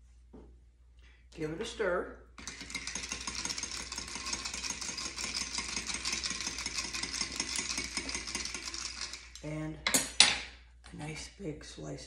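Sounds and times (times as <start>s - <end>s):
spoon stirring ice in glass: 2.4s - 9.4s.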